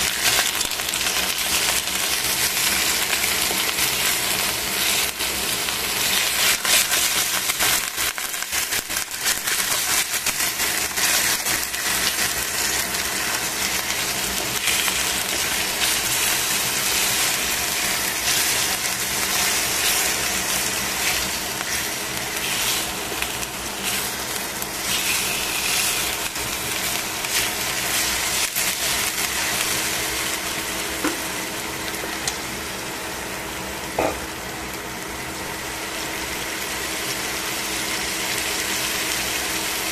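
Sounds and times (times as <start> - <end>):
chicken sizzling in a pan: 0.0 - 39.9
tongs scraping a pan: 14.3 - 24.2, 24.8 - 29.0.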